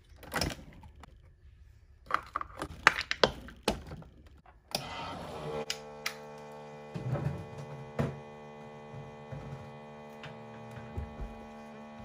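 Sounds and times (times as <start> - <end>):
coffee maker pump humming: 4.7 - 12.0.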